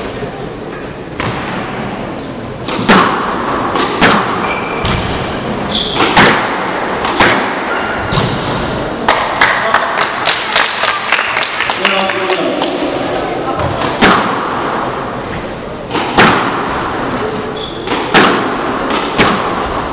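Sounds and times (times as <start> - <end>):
squash ball hits: 1.2 - 2.0, 2.6 - 9.6, 13.5 - 14.9, 15.8 - 19.8
shoes squeaking on wooden floor: 4.4 - 5.0, 5.6 - 6.1, 17.4 - 18.0.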